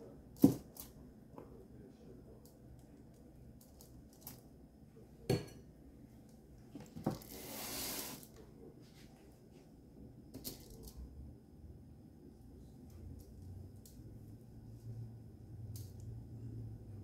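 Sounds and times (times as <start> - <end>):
scraping rustle of foil pan: 7.2 - 8.3.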